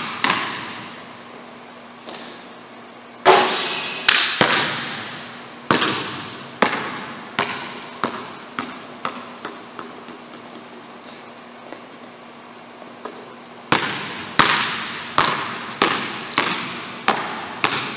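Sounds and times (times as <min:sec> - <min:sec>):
basketball bouncing on hardwood floor: 0:00.0 - 0:01.0, 0:04.4 - 0:10.8, 0:13.0 - 0:17.9.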